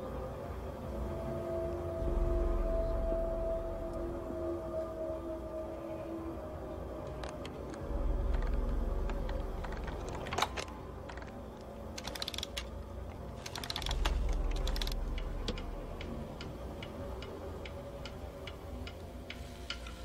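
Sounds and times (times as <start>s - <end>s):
low droning film score: 0.0s - 20.0s
clockwork ratcheting clicks: 12.0s - 12.7s, 13.4s - 16.1s.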